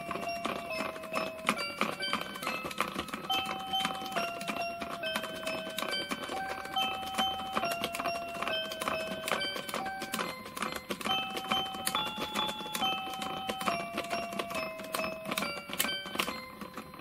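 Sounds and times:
quick ticking rhythm: 0.0 - 17.0
toy electronic melody: 0.0 - 17.0.

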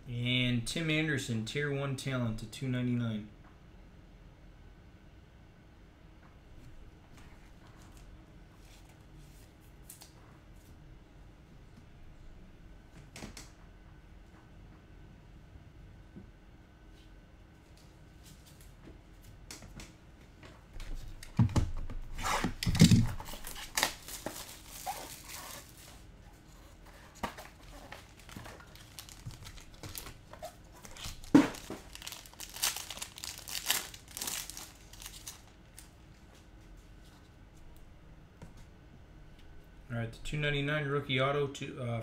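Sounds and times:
packaging crinkling and tearing: 22.3 - 26.0, 27.2 - 35.9.

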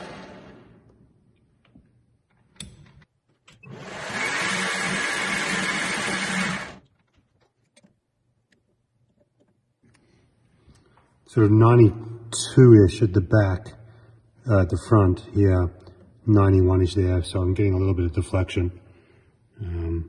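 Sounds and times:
metal lathe running: 3.8 - 6.8.

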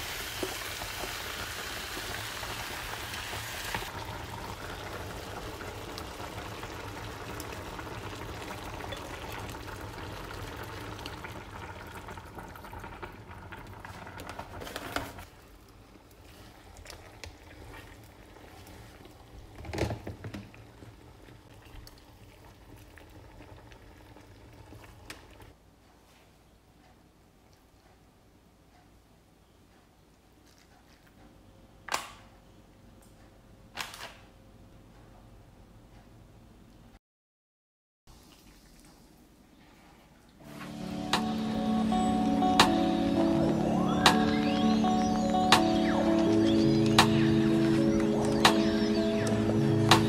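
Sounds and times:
sauce bubbling and sizzling: 0.0 - 19.6, 20.6 - 25.5.

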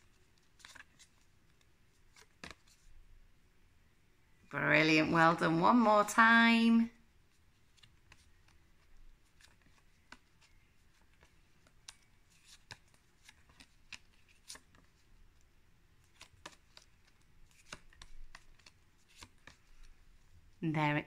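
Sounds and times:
flash cards flipping: 7.7 - 15.0, 16.0 - 19.9.

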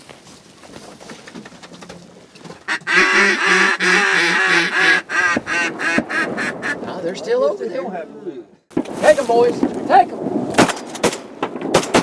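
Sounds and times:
duck quacking: 2.7 - 7.0.

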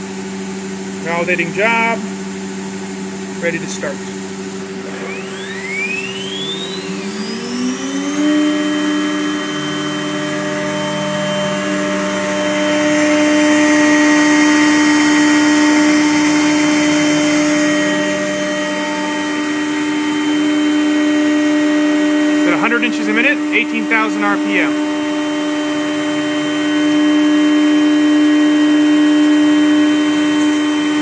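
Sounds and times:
router spindle whine: 0.0 - 31.0
router bit cutting plastic: 3.4 - 31.0.

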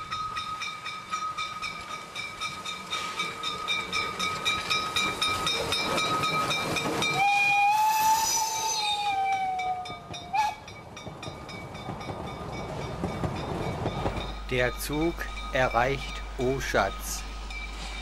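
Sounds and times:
steam locomotive exhaust beats: 0.0 - 18.0
steam whistle blast: 7.2 - 10.6
steam hissing: 14.2 - 18.0.

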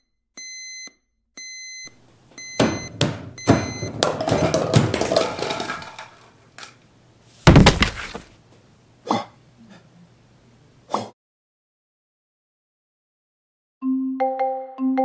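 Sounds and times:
heavy thud: 2.6 - 5.0, 7.4 - 8.3
bedsheets rustling: 7.3 - 8.4
short knock: 7.5 - 8.2.

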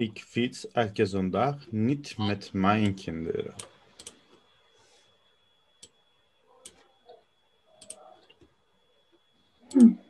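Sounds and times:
computer mouse clicking: 3.6 - 4.2, 6.6 - 6.9, 7.8 - 8.5.

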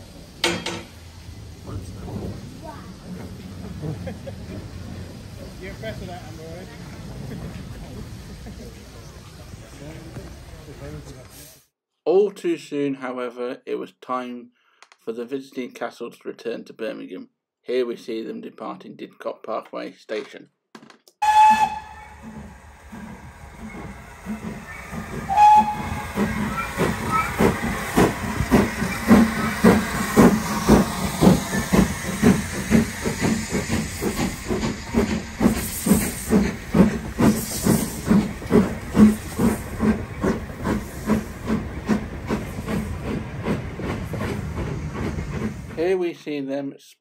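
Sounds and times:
steam hissing: 0.0 - 11.6, 21.2 - 45.9
steam locomotive chuffing: 0.0 - 11.6, 21.2 - 46.0.

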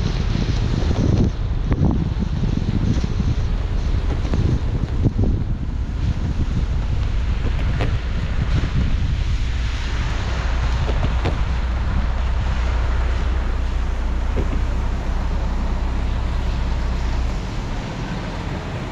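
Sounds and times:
car rumble: 0.0 - 18.9
wind buffeting microphone: 0.0 - 18.9
tyre hiss on wet road: 5.9 - 18.9.

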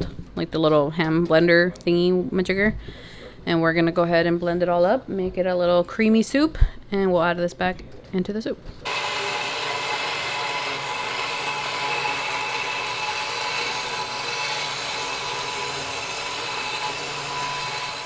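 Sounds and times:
immersion blender running: 8.9 - 18.0.

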